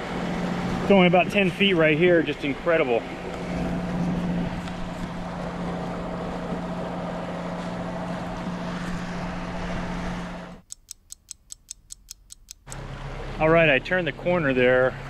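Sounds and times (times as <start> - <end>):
boat engine humming: 0.0 - 15.0
clock ticking: 10.6 - 12.8.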